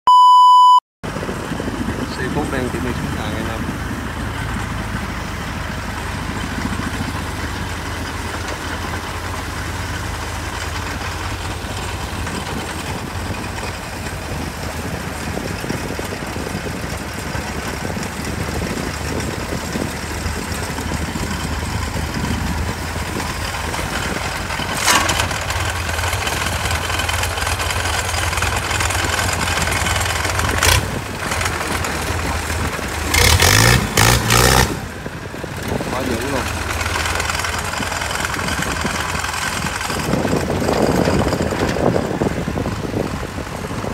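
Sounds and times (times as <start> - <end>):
excavator diesel engine running: 1.0 - 43.9.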